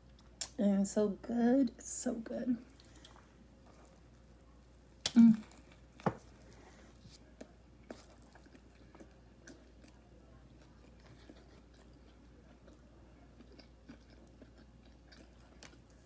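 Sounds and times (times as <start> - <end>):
faint chewing: 2.6 - 16.0.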